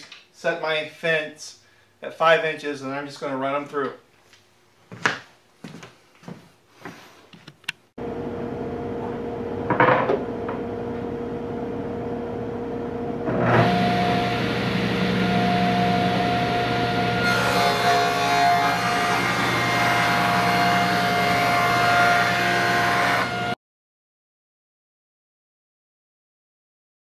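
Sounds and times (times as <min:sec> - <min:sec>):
table saw running: 0:13.3 - 0:23.6.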